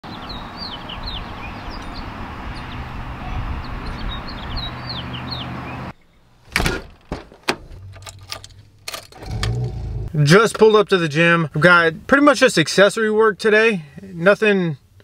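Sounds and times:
small birds chirping: 0:00.1 - 0:06.4.

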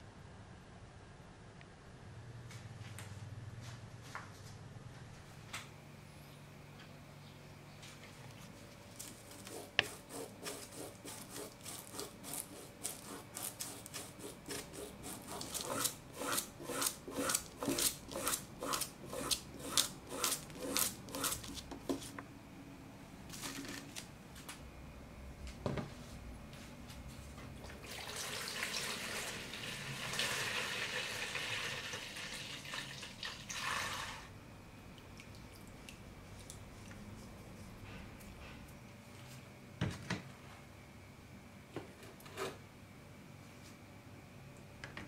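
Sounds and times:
wire brush scrubbing metal: 0:09.3 - 0:21.5.

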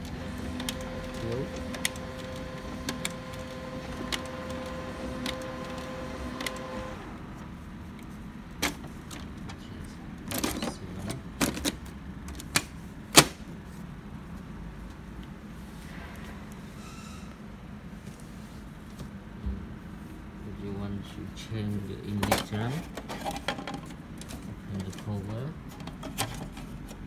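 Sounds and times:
printer motor humming and clicking: 0:00.0 - 0:07.2.

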